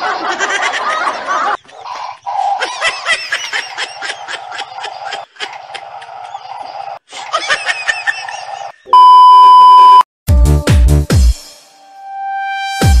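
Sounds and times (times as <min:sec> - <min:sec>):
test-tone beep: 0:08.9 - 0:10.0.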